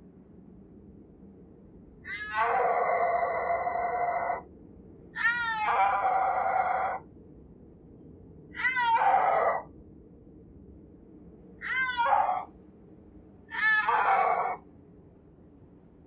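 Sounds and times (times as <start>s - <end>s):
snow leopard yowling: 2.1s - 4.4s, 5.2s - 7.0s, 8.6s - 9.7s, 11.6s - 12.5s, 13.5s - 14.6s.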